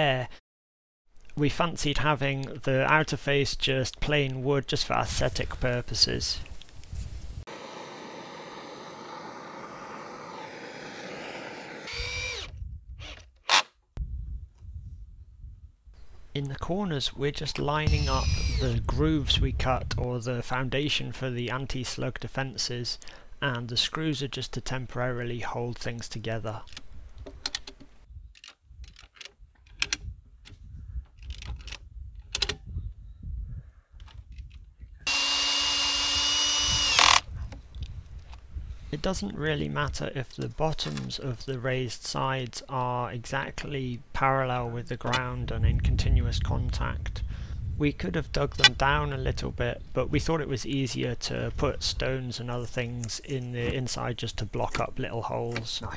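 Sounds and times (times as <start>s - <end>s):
blowtorch roaring: 7.5s - 12.4s
cordless drill driving screws: 11.9s - 13.7s, 17.9s - 18.7s, 35.1s - 37.2s.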